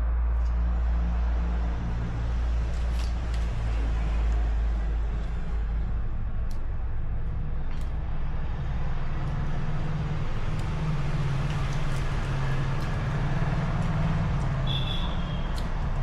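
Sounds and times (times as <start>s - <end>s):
low mechanical rumble: 0.0s - 16.0s.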